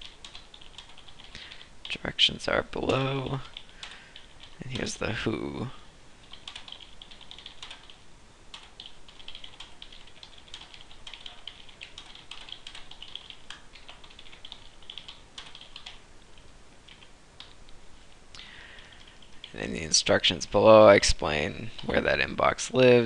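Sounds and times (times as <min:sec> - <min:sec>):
computer keyboard typing: 0:00.0 - 0:02.0, 0:02.9 - 0:05.0, 0:06.2 - 0:17.6, 0:18.8 - 0:19.6.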